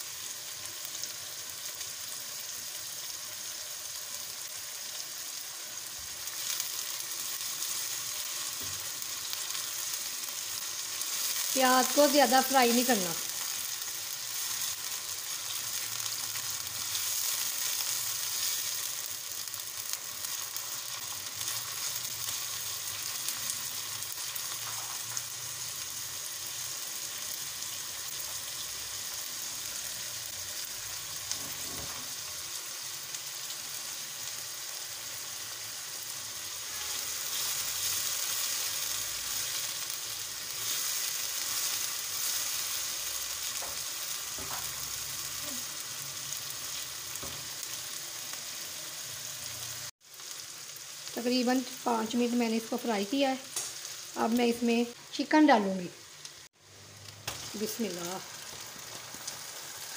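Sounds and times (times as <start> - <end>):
onions sizzling in oil: 0.0 - 59.9.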